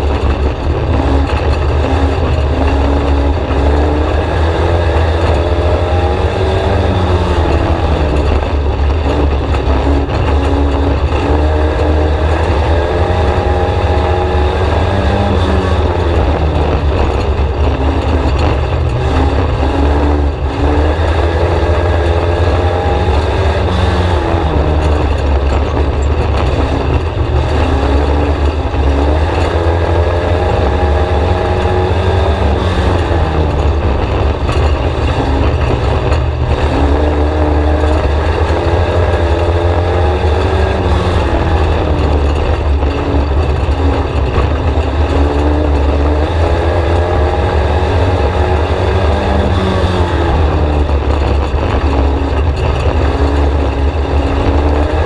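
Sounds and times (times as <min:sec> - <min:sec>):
heavy low rumble: 0:00.0 - 0:55.0
race car engine revving: 0:00.0 - 0:55.0.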